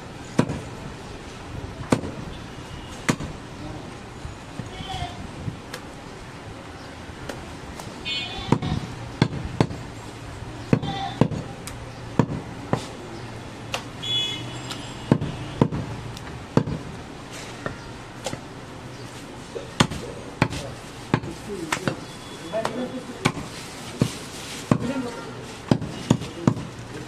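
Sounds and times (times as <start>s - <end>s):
knife chopping on wooden block: 12.2s - 12.9s.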